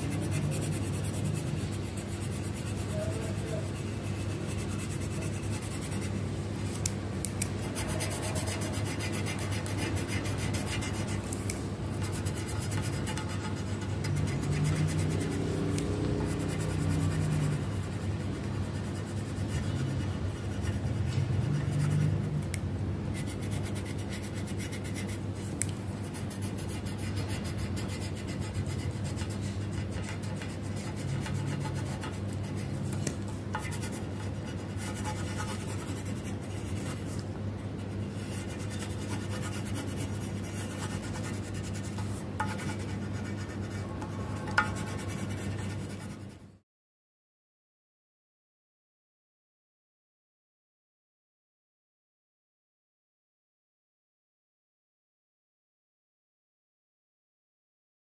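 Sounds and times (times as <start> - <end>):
pencil scratching on paper: 0.0 - 6.8, 7.4 - 22.4, 23.1 - 37.2, 37.8 - 46.6
steady low hum: 0.0 - 46.6.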